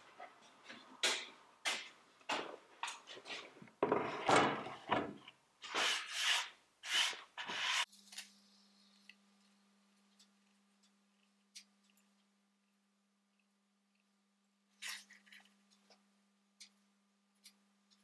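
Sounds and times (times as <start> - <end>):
faint steady hum: 7.8 - 18.0.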